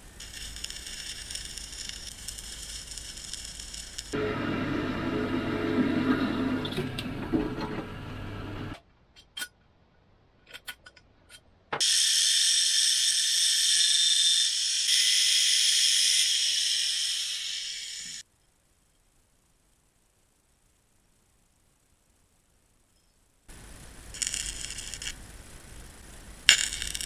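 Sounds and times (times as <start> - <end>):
clicks of metal being handled: 10.4 - 11.5
angle grinder grinding steel: 11.8 - 18.2.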